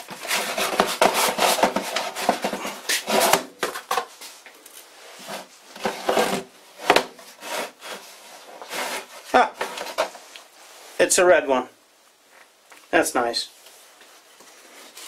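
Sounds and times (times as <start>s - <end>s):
plastic case scraping: 0.0s - 4.1s, 5.1s - 10.2s.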